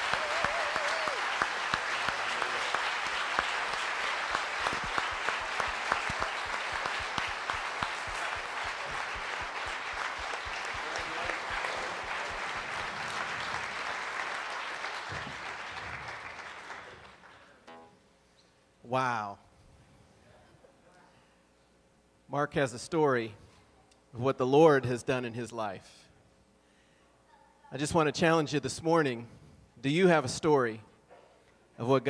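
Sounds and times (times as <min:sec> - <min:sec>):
congregation applauding: 0:00.0 - 0:17.6.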